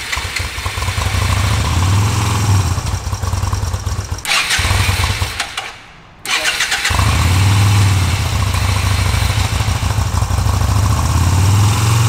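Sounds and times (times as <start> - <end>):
motorcycle engine running unevenly: 0.0 - 5.2, 6.8 - 12.0.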